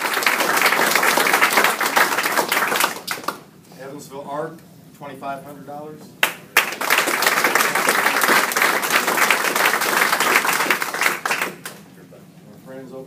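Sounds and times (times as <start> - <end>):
audience clapping: 0.0 - 3.5, 6.2 - 11.9.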